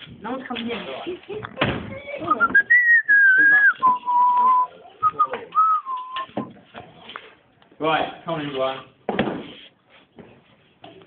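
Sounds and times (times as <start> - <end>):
person whistling: 2.3 - 6.5.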